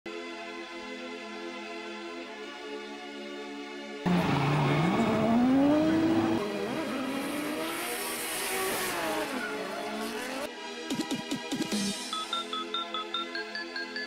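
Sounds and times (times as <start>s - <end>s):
music: 0.1s - 4.1s, 9.2s - 14.0s
car engine revving: 4.1s - 10.5s.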